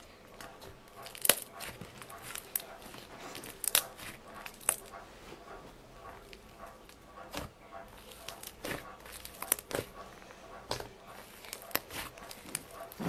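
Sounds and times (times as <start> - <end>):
slime crackling and popping: 7.3 - 10.0, 10.7 - 13.0.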